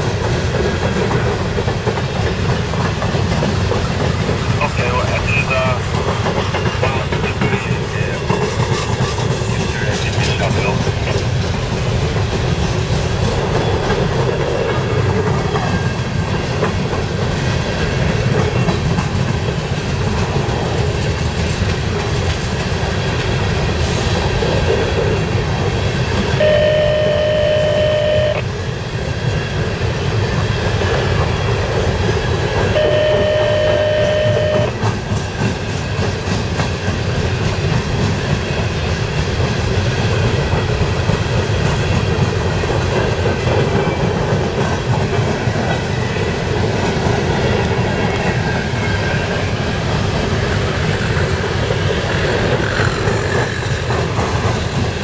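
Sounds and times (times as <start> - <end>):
train wheels rumbling on rail: 0.0 - 55.0
locomotive horn blasts: 26.4 - 28.5, 32.7 - 34.8.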